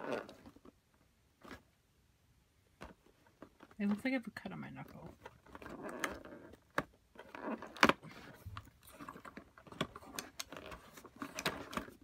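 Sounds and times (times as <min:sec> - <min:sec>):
fingernails scratching cardboard: 0:05.5 - 0:12.0.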